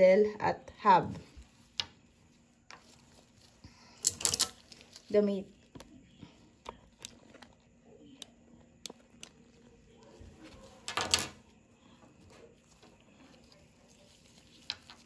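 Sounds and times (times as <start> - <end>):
plastic tubes clattering on table: 4.0 - 4.7, 10.9 - 11.4.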